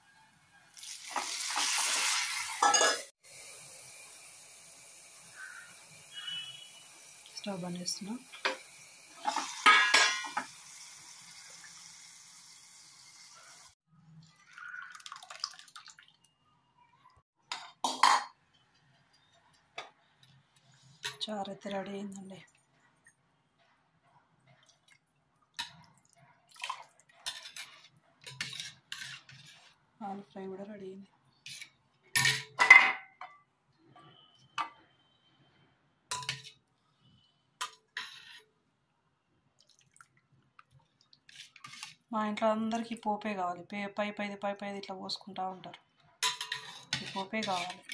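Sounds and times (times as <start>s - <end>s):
seeds sizzling in hot oil: 0.7s - 13.8s
utensils clinking on steel pots: 2.4s - 3.1s, 7.4s - 10.6s, 26.6s - 29.5s, 31.5s - 33.4s, 36.1s - 36.6s, 46.2s - 47.9s
ladle stirring in steel bowl: 26.6s - 29.8s, 41.2s - 42.1s, 46.2s - 47.9s.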